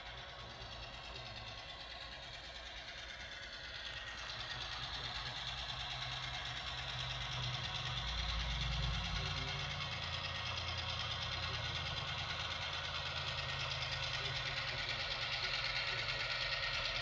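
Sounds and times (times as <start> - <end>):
model locomotive running on track: 0.0 - 17.0.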